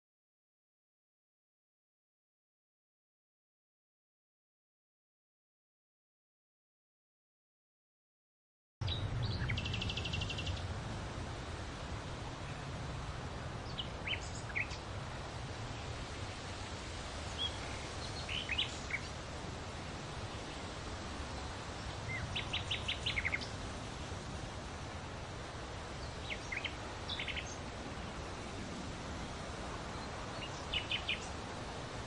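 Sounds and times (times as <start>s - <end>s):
small birds chirping: 8.8s - 10.7s, 13.5s - 16.2s, 17.2s - 32.0s.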